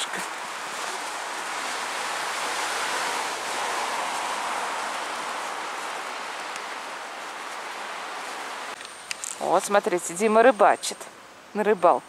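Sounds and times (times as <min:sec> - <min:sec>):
outdoor rushing noise: 0:02.0 - 0:08.4.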